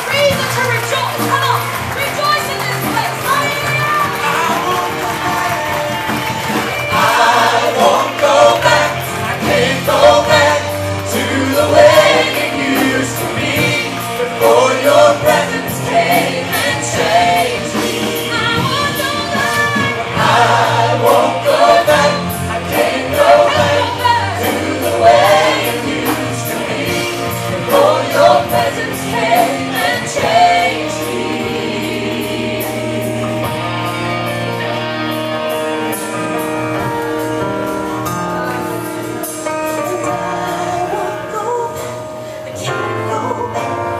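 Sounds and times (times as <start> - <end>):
drums: 0.0 - 43.9
electric guitar: 0.0 - 43.9
keyboard: 0.0 - 43.9
singers singing worship song: 4.2 - 34.2.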